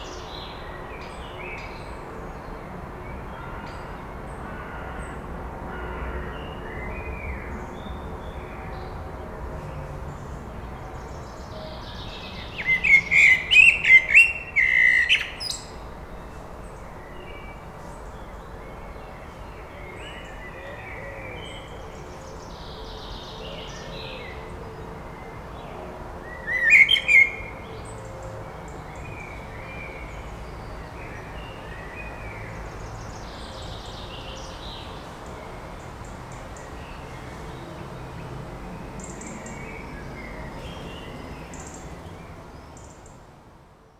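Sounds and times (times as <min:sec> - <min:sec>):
faint birdsong: 0:00.0 - 0:43.9
blackbird singing: 0:11.2 - 0:15.8, 0:26.2 - 0:28.0.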